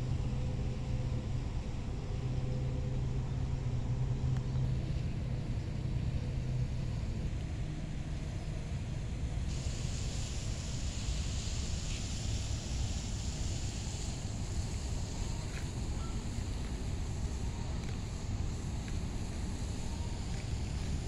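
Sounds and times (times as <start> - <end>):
steady low rumble and hum: 0.0 - 21.0.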